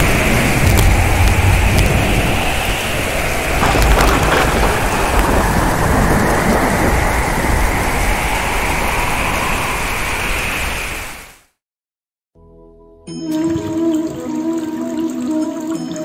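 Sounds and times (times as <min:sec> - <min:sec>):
low thunder rumbling: 0:00.0 - 0:10.4
heavy rain hissing: 0:00.0 - 0:11.5.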